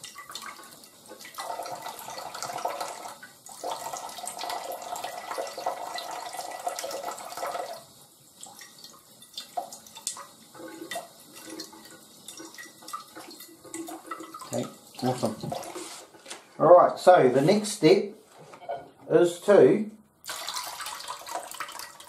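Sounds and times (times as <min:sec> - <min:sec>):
water patters and drips: 0:00.0 - 0:16.1, 0:20.2 - 0:22.0
tap water splashing into sink: 0:08.4 - 0:15.9, 0:20.2 - 0:22.0.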